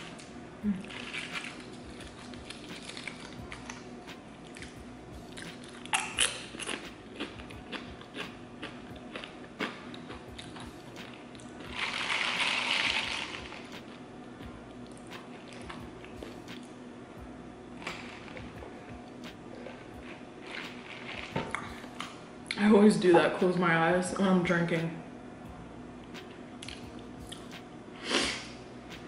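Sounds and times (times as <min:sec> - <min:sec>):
biting into a tortilla chip: 0:00.2 - 0:14.0
crisp chewing crunches: 0:00.2 - 0:14.0, 0:19.5 - 0:22.2.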